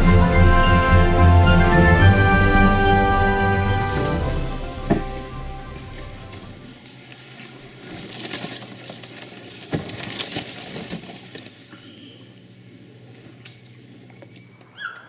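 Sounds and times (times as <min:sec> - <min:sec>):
steady low hum: 0:00.0 - 0:14.8
boat knocks and splashes: 0:04.0 - 0:06.2.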